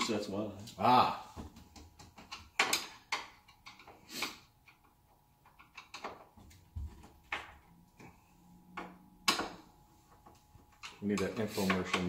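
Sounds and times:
metal clicks and knocks: 0:01.6 - 0:04.0, 0:04.6 - 0:06.6.

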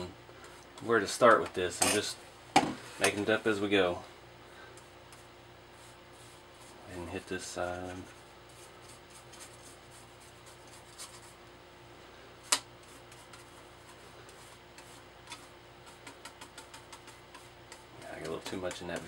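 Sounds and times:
faint steady hum: 0:00.0 - 0:19.0
paintbrush scrubbing on plastic: 0:05.1 - 0:11.4, 0:12.8 - 0:19.0.

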